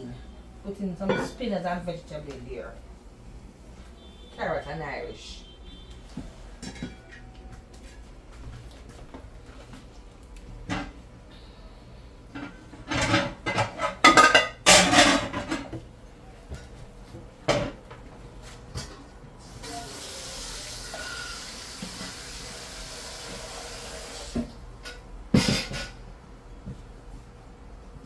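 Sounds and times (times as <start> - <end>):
dishes clattering in metal sink: 1.0 - 1.4, 6.5 - 7.3, 10.6 - 11.0, 12.3 - 15.8, 17.4 - 17.8, 24.4 - 26.0
tap running: 20.9 - 25.8.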